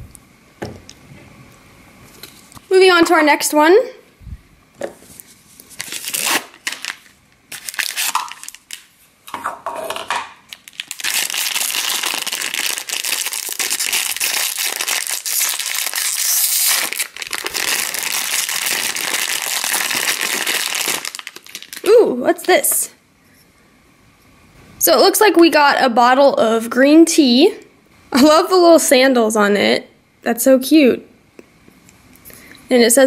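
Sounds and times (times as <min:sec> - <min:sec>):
foil packet crinkling: 0:05.6 - 0:09.0, 0:10.4 - 0:22.5.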